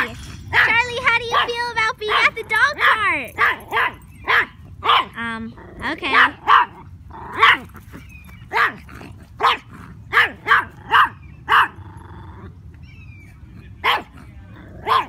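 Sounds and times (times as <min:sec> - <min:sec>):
small dog barking: 0:00.0 - 0:01.5, 0:02.1 - 0:05.2, 0:06.1 - 0:07.8, 0:08.5 - 0:11.8, 0:13.8 - 0:15.0.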